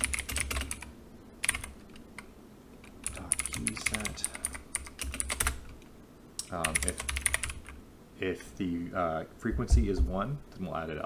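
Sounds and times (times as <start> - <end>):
computer keyboard typing: 0.0 - 5.8, 6.4 - 7.8.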